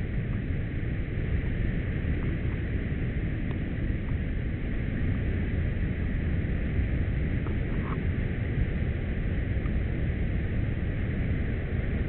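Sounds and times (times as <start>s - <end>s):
steady rushing noise: 0.0s - 12.0s.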